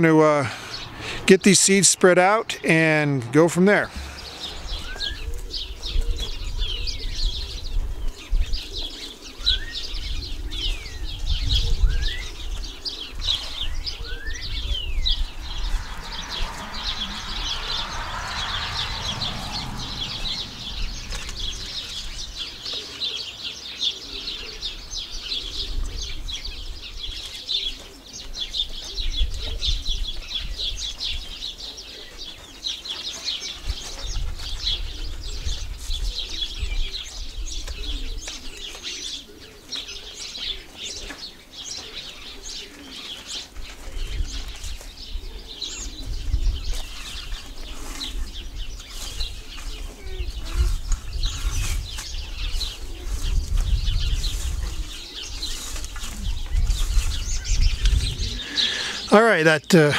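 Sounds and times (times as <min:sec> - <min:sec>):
sparrows chirping: 0:00.0 - 0:59.9.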